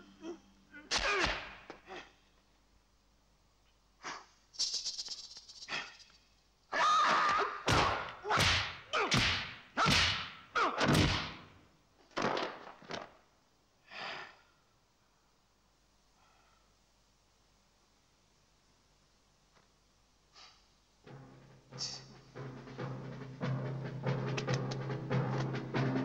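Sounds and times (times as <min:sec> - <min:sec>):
punch and kick hits: 0:07.7 - 0:11.5.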